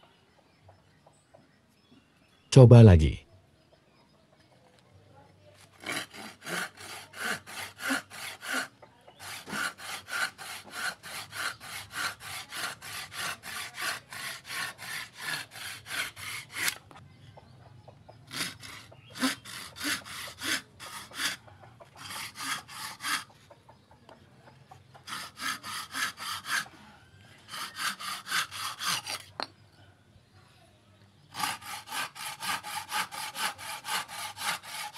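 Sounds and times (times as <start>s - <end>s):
handsaw sawing wood: 5.7s - 16.8s, 18.3s - 23.3s, 25.0s - 29.3s, 31.3s - 34.9s.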